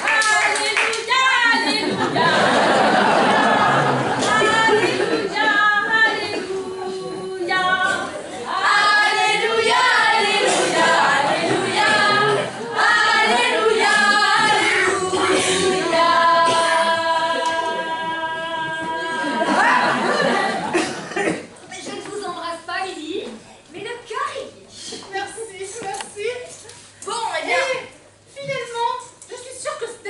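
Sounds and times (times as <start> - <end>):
voices singing unaccompanied: 1.1 - 20.7.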